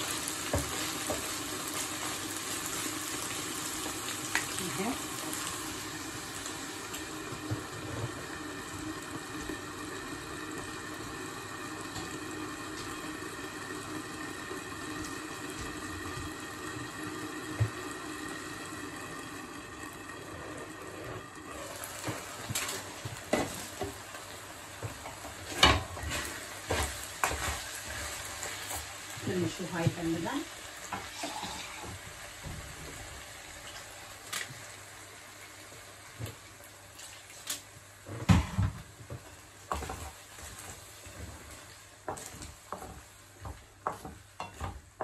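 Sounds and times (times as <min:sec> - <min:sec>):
wooden spoon stirring in pan: 0:00.0 - 0:06.7, 0:20.2 - 0:33.9, 0:38.0 - 0:45.0
rice simmering with bubbling hiss: 0:00.0 - 0:45.0
spoon knocking on pan: 0:42.1 - 0:44.8.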